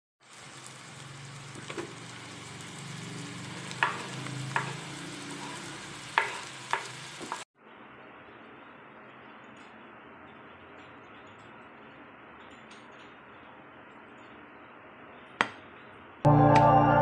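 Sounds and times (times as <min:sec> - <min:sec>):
vegetables frying in oil: 0:00.2 - 0:07.5.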